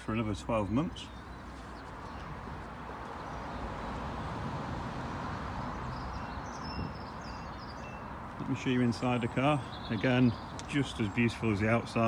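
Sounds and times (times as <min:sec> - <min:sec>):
vehicle passing: 0:01.8 - 0:09.7.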